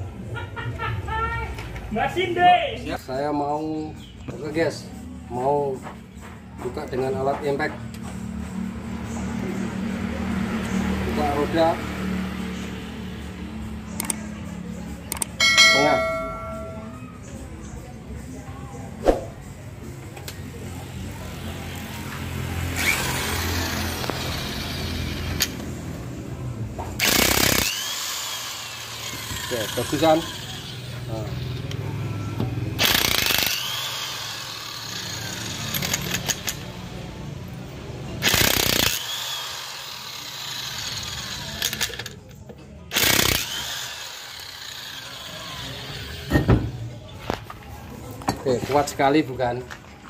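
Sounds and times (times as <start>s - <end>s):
electric impact wrench running: 22.7s - 25.7s, 27.0s - 31.7s, 32.8s - 36.7s, 38.2s - 42.2s, 42.9s - 46.4s
impact wrench hammering: 27.0s - 30.8s, 32.8s - 36.6s.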